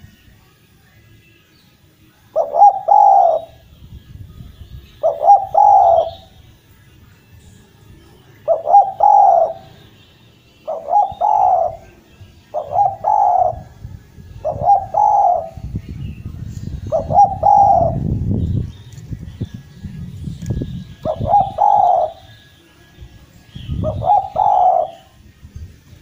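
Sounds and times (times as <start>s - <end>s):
dove cooing: 2.3s - 3.6s, 5.0s - 6.4s, 8.4s - 9.8s, 10.6s - 13.8s, 14.4s - 15.6s, 16.9s - 18.0s, 21.0s - 22.4s, 23.7s - 25.2s.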